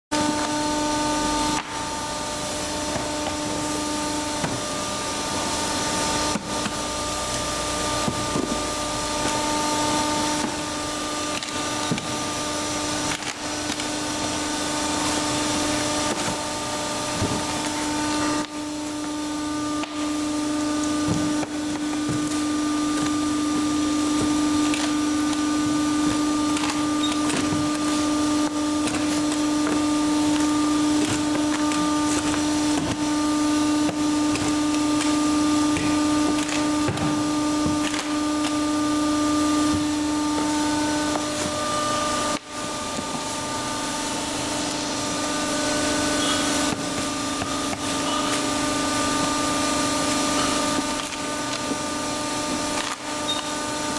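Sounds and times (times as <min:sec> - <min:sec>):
machine noise: 0:00.1 - 0:53.9
mechanical hum: 0:00.1 - 0:53.9.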